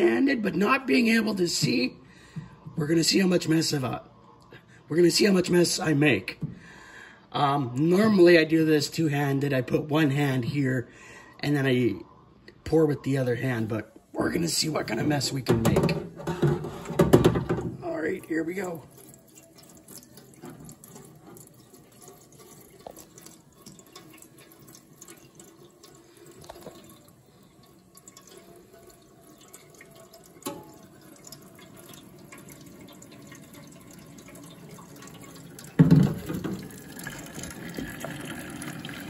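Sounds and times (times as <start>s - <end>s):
water trickling and dripping: 17.8s - 39.0s.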